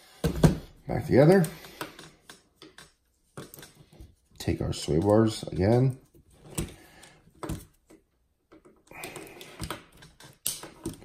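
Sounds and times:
plastic and metal parts clicking: 6.5s - 11.0s.

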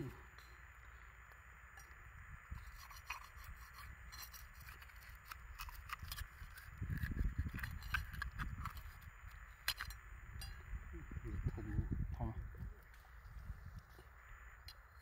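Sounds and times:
low rumbling: 6.6s - 14.6s.

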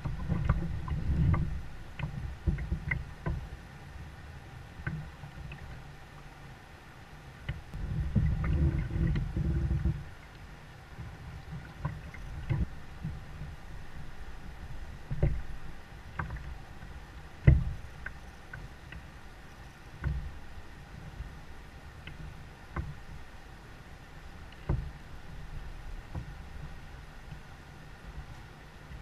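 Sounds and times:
hollow knocks on kayak hull: 0.0s - 3.5s, 7.5s - 10.0s, 15.1s - 15.5s, 17.4s - 18.2s, 24.6s - 24.9s, 26.1s - 26.3s
low rumble: 7.7s - 10.3s.

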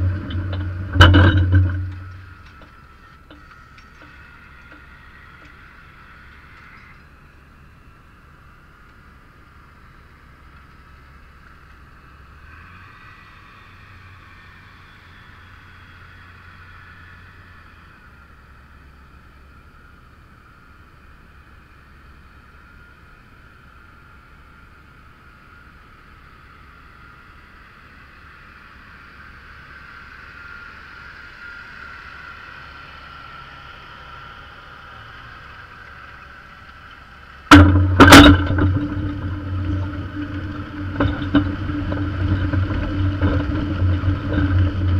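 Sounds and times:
sharp loud clunks: 0.0s - 4.8s, 37.5s - 44.9s
faint tractor engine: 0.0s - 44.9s
loud low engine drone and rattle: 0.0s - 44.9s.

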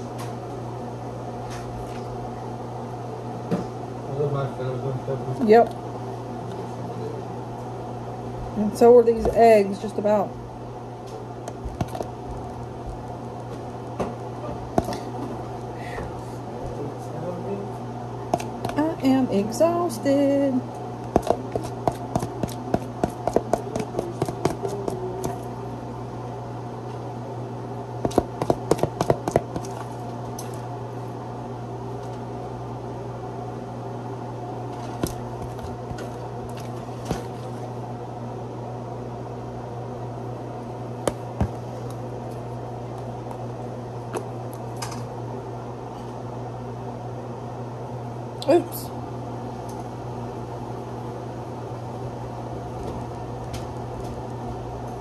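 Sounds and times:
steady low hum: 0.0s - 55.0s
utensil tapping against a dish: 21.1s - 25.4s, 28.0s - 29.7s.

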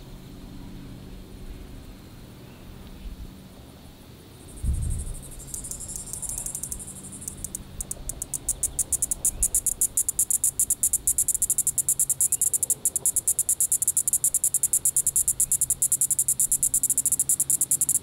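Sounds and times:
high buzz from playback: 4.3s - 18.0s
cicada clicking pulses: 4.4s - 18.0s.

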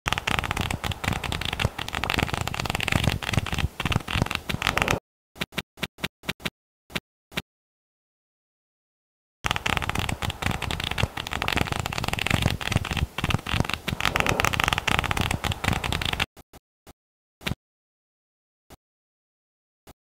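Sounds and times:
flipbook pages riffling: 0.1s - 5.0s, 9.5s - 16.3s.

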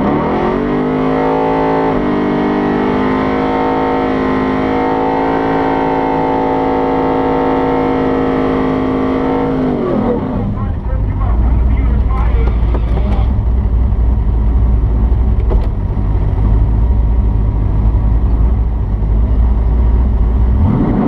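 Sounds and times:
engine revving at high revs: 0.0s - 10.4s, 20.5s - 21.0s.

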